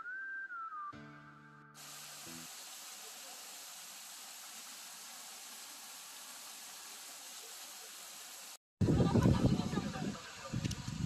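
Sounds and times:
background music: 0.0s - 2.4s
steady hiss: 1.8s - 8.6s.

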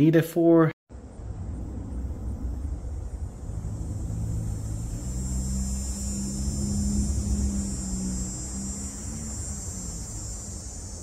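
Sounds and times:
low outdoor rumble: 0.9s - 11.0s
low steady hum: 0.9s - 11.0s.

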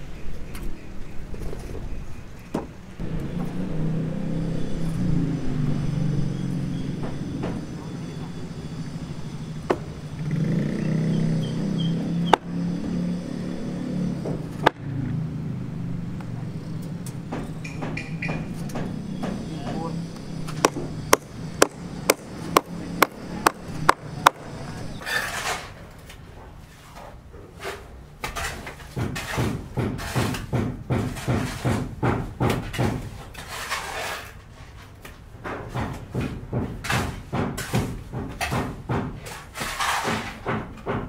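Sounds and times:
hammer blows: 3.0s - 15.0s, 16.7s - 25.4s.

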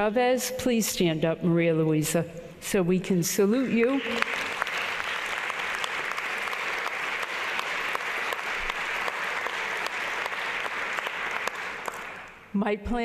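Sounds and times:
audience applauding: 3.7s - 12.4s.

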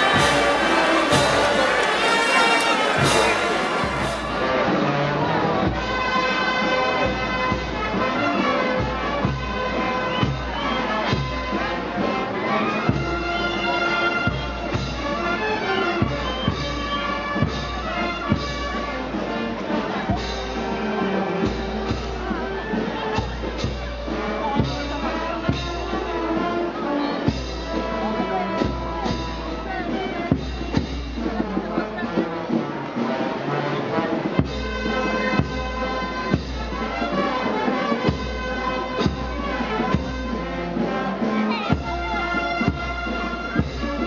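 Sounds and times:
bass drum beats: 0.0s - 4.6s
wind instruments sustained notes: 0.0s - 4.7s
drum beats: 0.0s - 4.8s, 16.0s - 33.5s, 34.1s - 44.0s
brass band playing a slow march: 0.0s - 44.0s.

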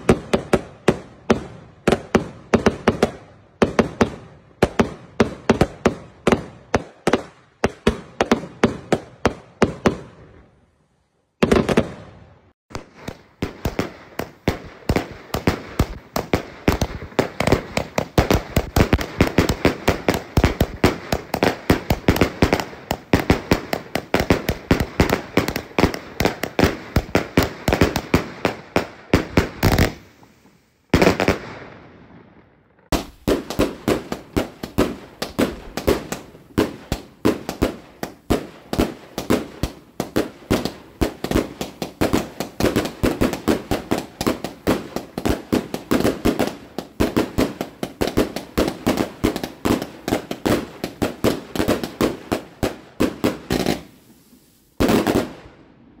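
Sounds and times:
firework cake bangs: 11.4s - 30.1s, 32.9s - 54.0s.

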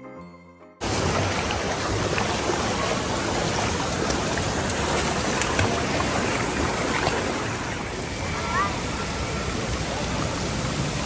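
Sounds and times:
feet splashing through water: 0.8s - 8.0s
flowing water rushing: 0.8s - 11.0s.

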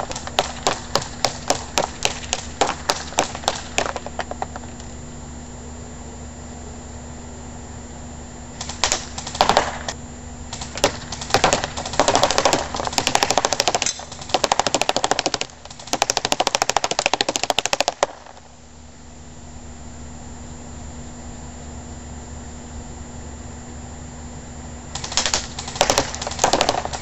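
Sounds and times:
pellets rattling into paper target: 0.0s - 4.8s
airsoft rifle shooting: 0.0s - 4.9s, 8.6s - 18.5s, 24.9s - 27.0s.

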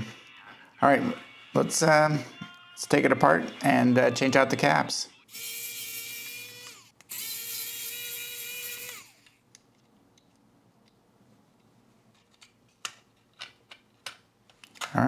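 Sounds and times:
electric screwdriver motor whine: 5.3s - 9.4s.

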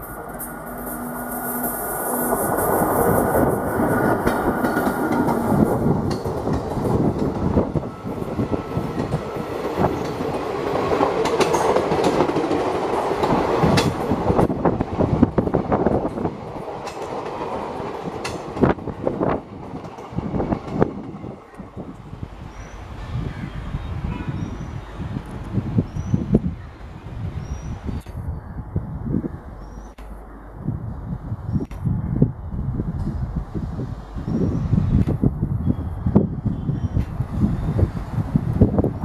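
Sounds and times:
wheels clacking over rail joints: 0.0s - 14.7s, 15.5s - 21.8s
train coaches rumbling: 0.0s - 28.0s, 32.2s - 39.0s.

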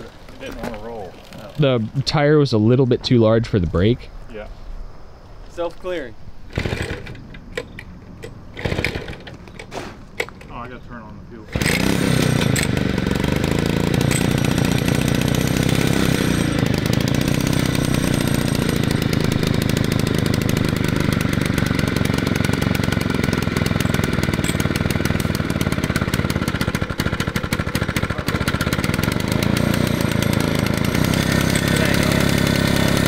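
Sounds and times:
two-stroke engine running: 6.5s - 7.8s, 8.5s - 9.3s, 11.5s - 33.0s.

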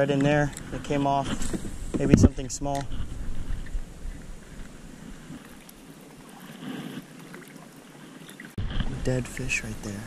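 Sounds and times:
paddle sloshing and splashing: 2.9s - 9.0s.

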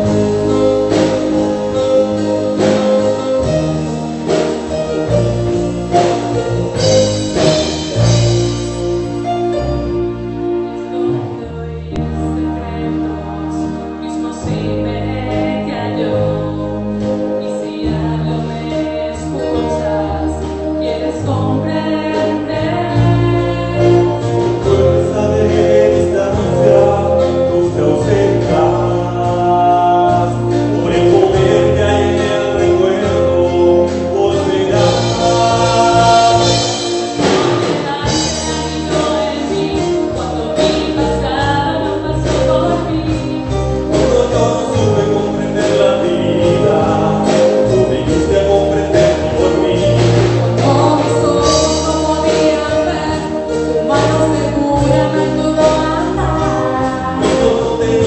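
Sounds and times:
drums: 0.0s - 58.0s
electric guitars: 0.0s - 58.0s
keyboard: 0.0s - 58.0s
women singing together: 31.2s - 46.4s, 50.5s - 58.0s.

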